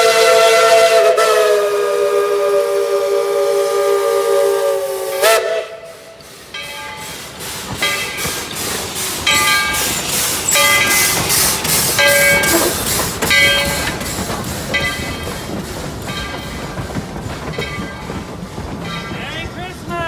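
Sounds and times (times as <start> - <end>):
steam whistle: 0.0 - 6.2
steam engine running: 1.1 - 20.0
locomotive bell ringing: 6.5 - 7.2, 7.8 - 8.5, 9.2 - 14.0, 14.7 - 16.9, 17.5 - 20.0
coaches rolling by: 6.6 - 20.0.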